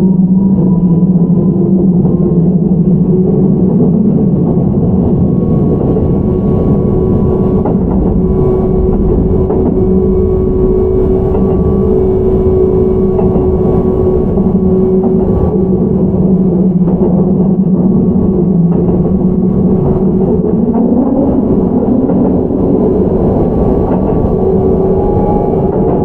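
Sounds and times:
wheels rumbling on rail: 0.0 - 26.0
traction motor hum: 4.7 - 26.0
rail-joint clicks: 10.6 - 26.0.

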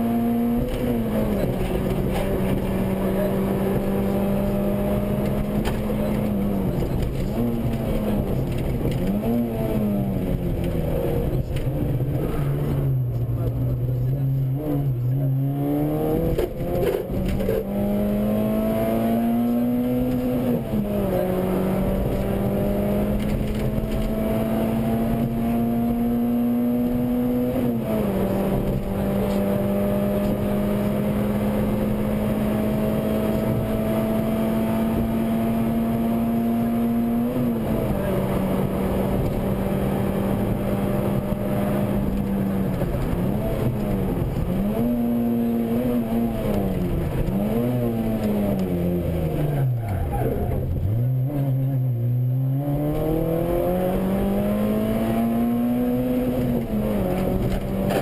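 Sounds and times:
rally car engine accelerating: 0.0 - 58.0.

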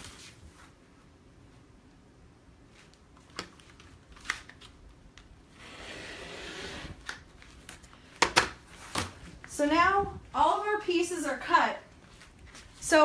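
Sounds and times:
rotary cutter slicing fabric: 5.6 - 7.0.

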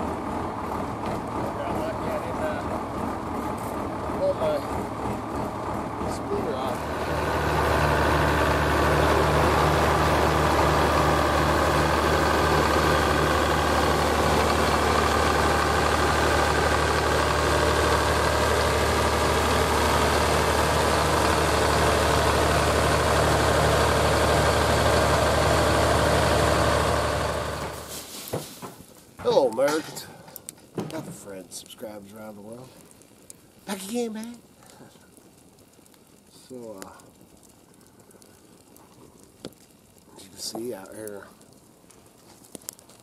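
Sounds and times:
tractor engine running: 0.0 - 28.0.

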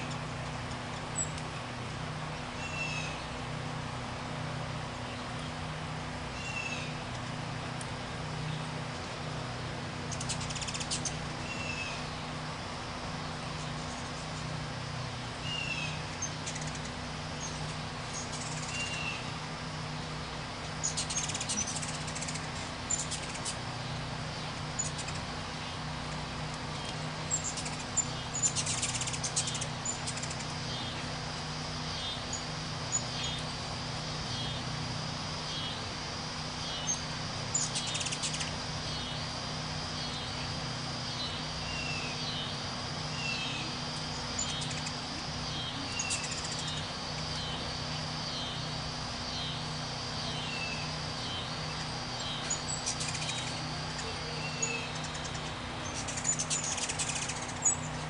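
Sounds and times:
hummingbird wings whirring: 0.0 - 58.0
steady faint hum: 0.0 - 58.0
sharp high bird chips and chatter: 10.0 - 12.2, 15.4 - 19.3, 20.1 - 33.6, 36.4 - 58.0
high bird call: 52.2 - 57.9.

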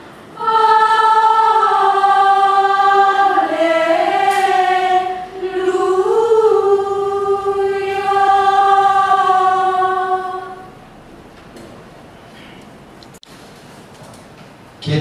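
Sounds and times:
women's choir chanting: 0.4 - 10.8.

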